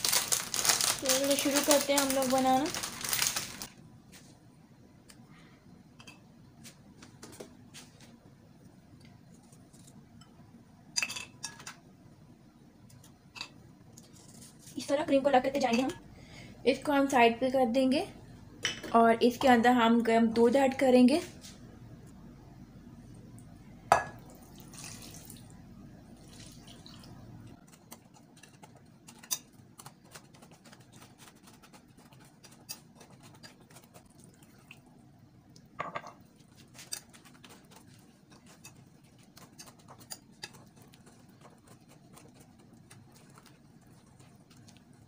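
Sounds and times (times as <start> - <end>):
whisk stirring in milk: 27.6 - 34.8, 36.4 - 45.0.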